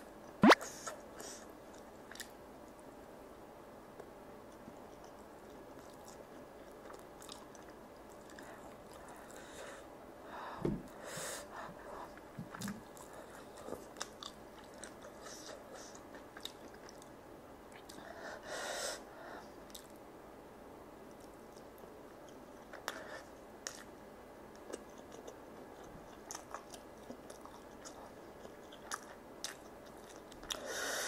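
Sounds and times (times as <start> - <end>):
mouth clicks: 0.4 - 1.0
wet chewing: 4.9 - 9.3, 24.6 - 30.6.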